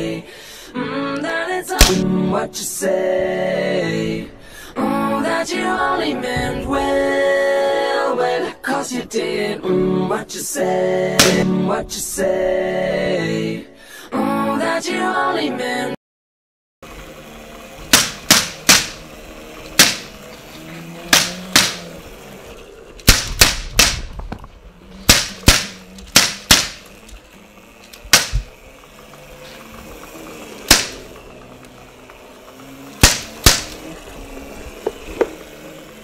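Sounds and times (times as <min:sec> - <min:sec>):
gunshots with room echo: 0:17.9 - 0:19.0, 0:25.1 - 0:26.8.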